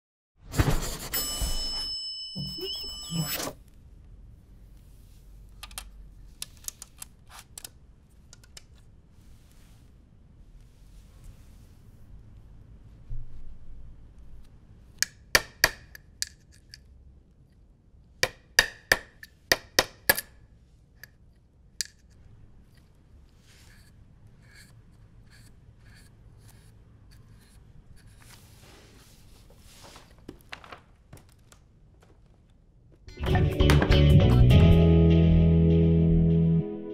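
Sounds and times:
low room hum: 1.2s - 33.2s
paintbrush scraping tin rim: 22.7s - 30.0s.

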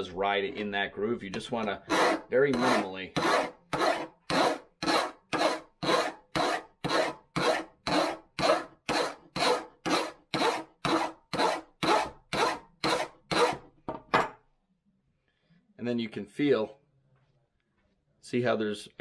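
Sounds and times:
file strokes on metal: 1.8s - 13.6s.

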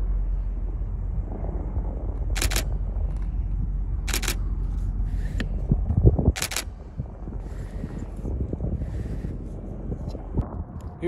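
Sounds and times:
distant aircraft rumble: 0.0s - 11.0s
camera shutter clicks: 2.4s - 2.7s, 4.1s - 4.4s, 6.4s - 6.7s.

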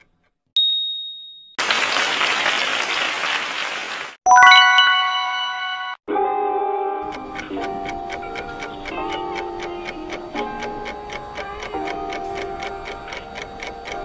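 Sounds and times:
high ding: 0.6s - 1.6s, 4.3s - 6.0s
applause sound effect: 1.6s - 6.0s
bright ringing chime: 4.3s - 6.0s
background music: 4.3s - 14.0s.

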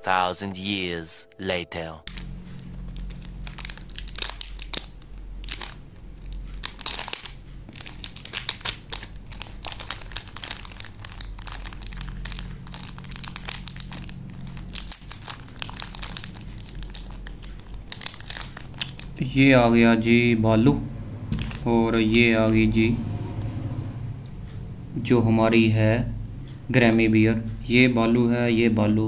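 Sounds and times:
steady low hum: 0.0s - 29.0s
plastic wrapper crinkling and tearing: 2.1s - 19.2s, 21.3s - 22.6s.

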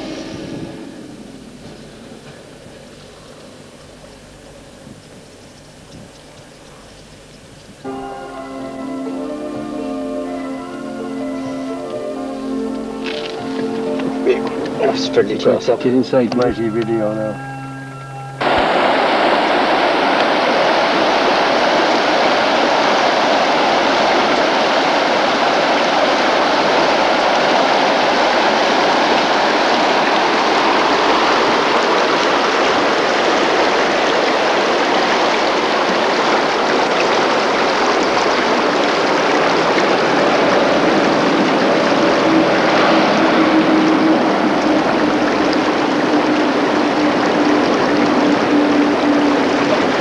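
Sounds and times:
river rushing over rocks: 18.4s - 50.0s.

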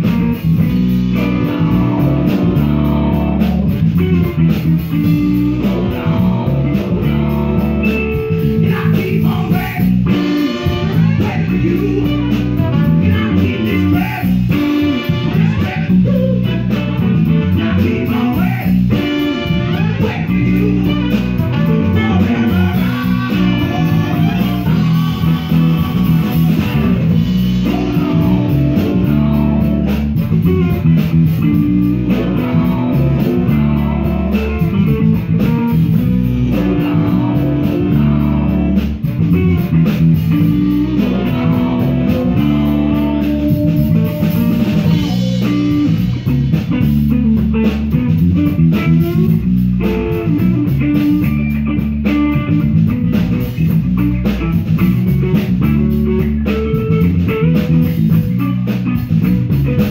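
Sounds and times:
trombone: 0.0s - 46.6s
bass: 0.0s - 59.9s
drum kit: 0.0s - 59.9s
electric guitar: 0.0s - 59.9s
saxophone: 0.0s - 59.9s
trumpet: 9.6s - 30.8s.

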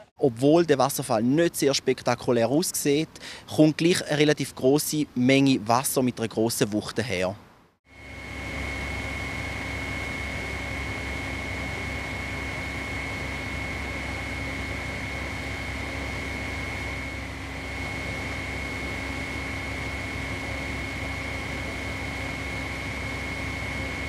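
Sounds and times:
machine humming with whine: 7.9s - 24.0s.

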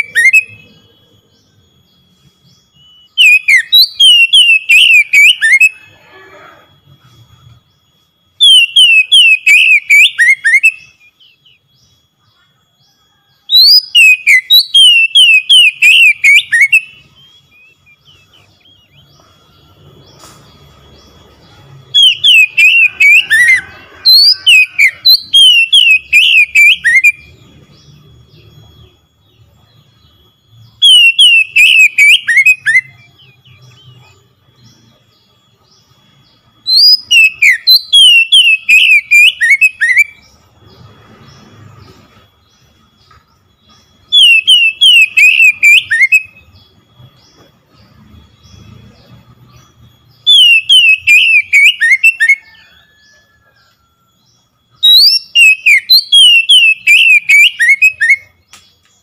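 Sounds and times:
bird singing whistled phrases: 0.0s - 0.9s, 1.9s - 6.6s, 7.8s - 12.1s, 13.1s - 19.2s, 21.9s - 35.4s, 36.6s - 40.4s, 43.6s - 46.8s, 48.4s - 53.8s, 54.7s - 59.0s.

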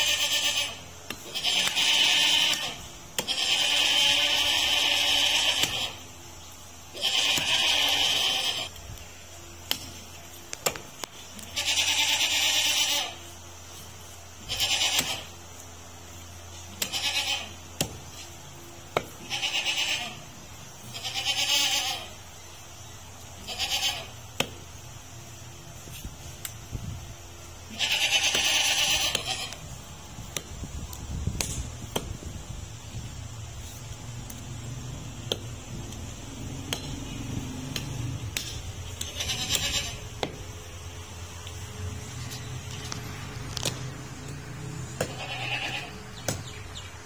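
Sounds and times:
goat bleating: 0.0s - 6.1s, 6.9s - 8.8s, 11.2s - 13.4s, 14.4s - 15.4s, 16.5s - 18.3s, 19.1s - 22.2s, 23.4s - 24.3s, 27.6s - 29.8s, 38.8s - 40.4s, 44.9s - 46.2s.

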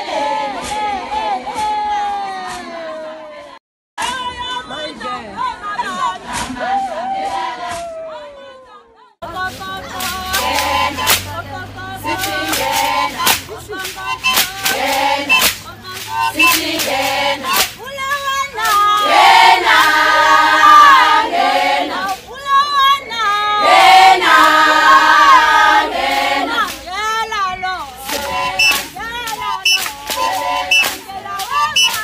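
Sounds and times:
group singing in chorus: 0.0s - 3.6s, 5.9s - 7.8s, 9.2s - 17.8s, 18.5s - 22.3s, 23.0s - 26.9s, 27.9s - 32.0s
sharp percussive hits: 12.1s - 17.8s.

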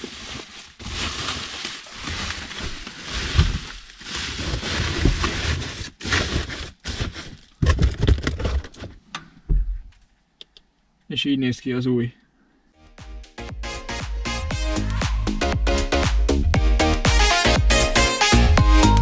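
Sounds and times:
plastic trim rustling and crackling: 0.0s - 9.0s.

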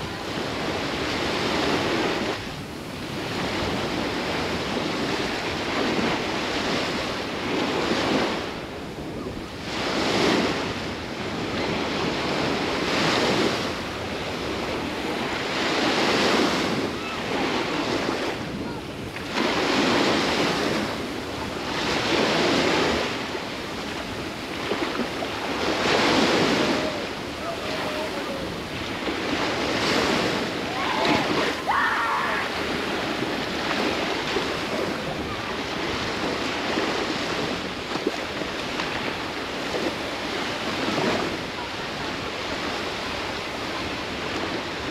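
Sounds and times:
waves washing onto shore: 0.0s - 44.9s
wind rumbling on microphone: 0.0s - 44.9s.

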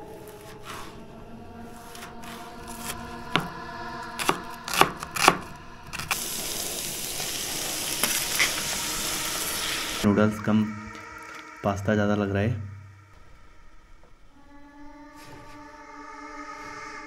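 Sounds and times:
sizzling hiss: 4.2s - 11.8s.

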